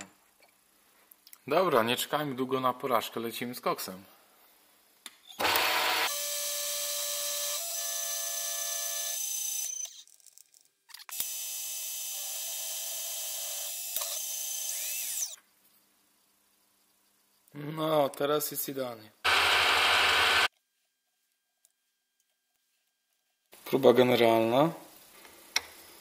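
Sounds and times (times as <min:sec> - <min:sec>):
milling machine whine: 0:19.3 - 0:20.5.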